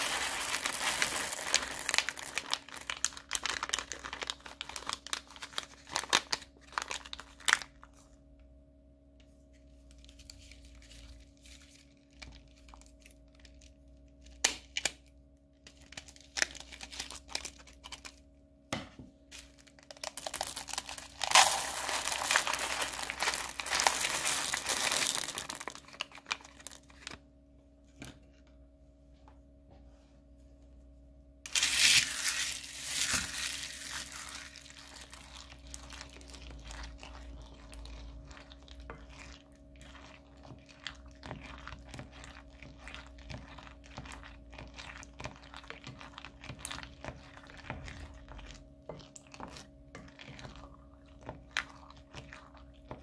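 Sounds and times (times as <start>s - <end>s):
plastic beads spilling into bowl: 0.0s - 6.4s, 19.9s - 26.8s, 31.5s - 36.2s
plastic bags crinkling: 0.0s - 7.8s, 15.8s - 18.2s, 19.4s - 27.2s, 31.5s - 41.6s.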